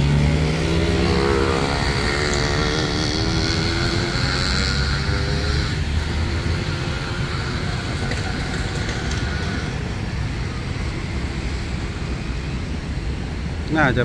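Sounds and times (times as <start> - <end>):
diesel locomotive engine rumbling: 0.0 - 14.0.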